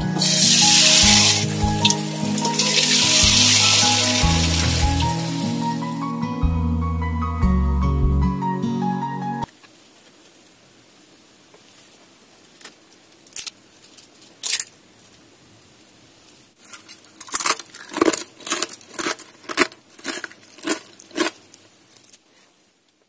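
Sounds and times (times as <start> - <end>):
crackers snapping and crunching: 12.6 - 14.8, 16.6 - 22.2.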